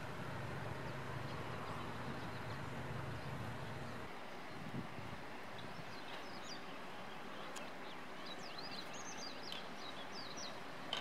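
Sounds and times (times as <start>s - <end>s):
outdoor background noise: 0.0s - 11.0s
songbird twittering: 5.4s - 11.0s.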